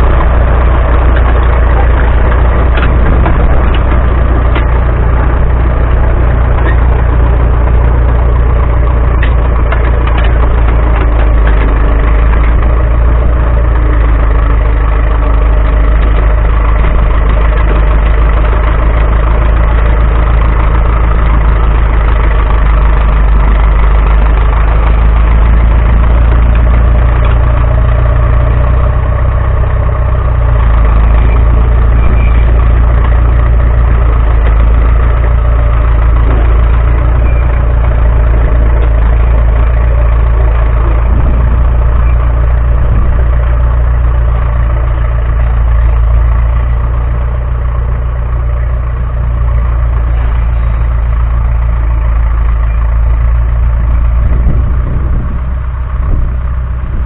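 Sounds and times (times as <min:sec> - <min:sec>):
diesel engine of crawler machinery: 0:00.0 - 0:57.0.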